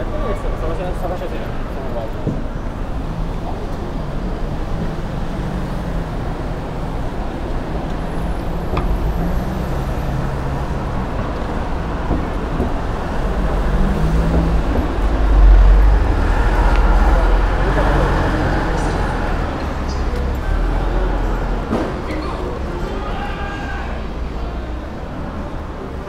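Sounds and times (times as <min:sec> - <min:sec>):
street traffic: 0:00.0 - 0:26.0
vehicle passing close: 0:02.9 - 0:22.7.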